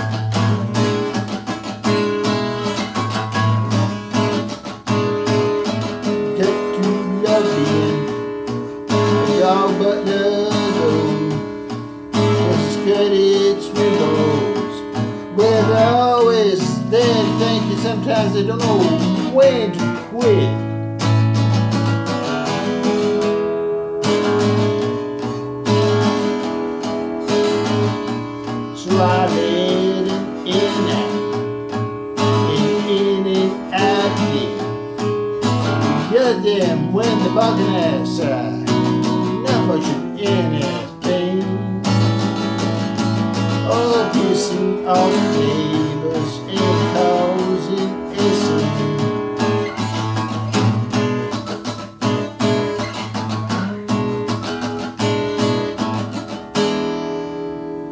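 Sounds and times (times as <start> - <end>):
acoustic guitar strumming: 0.0 - 57.9
man singing: 5.1 - 20.8, 27.3 - 51.8.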